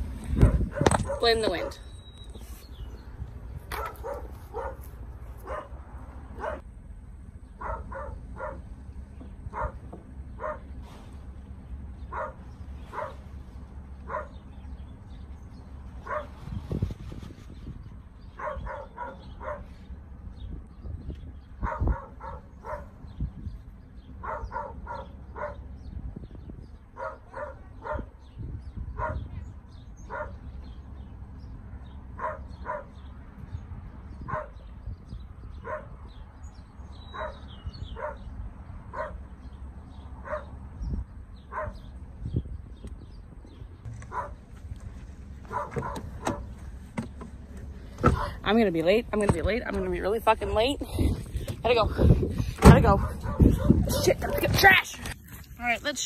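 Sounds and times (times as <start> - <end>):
low steady rumble: 0.0 - 56.0
dog barking: 0.4 - 1.8, 3.7 - 5.8, 6.4 - 6.6, 7.6 - 8.7, 9.5 - 9.8, 10.4 - 10.7, 12.1 - 13.2, 14.1 - 14.4, 16.0 - 16.3, 18.4 - 19.7, 21.6 - 22.9, 24.2 - 25.6, 27.0 - 28.2, 29.0 - 29.3, 30.1 - 30.4, 32.2 - 33.0, 34.3 - 34.6, 35.6 - 36.0, 37.1 - 38.3, 38.9 - 39.2, 40.2 - 40.5, 41.5 - 41.9, 44.1 - 44.4, 45.5 - 46.5, 52.9 - 54.5
loud thump: 52.6 - 52.9.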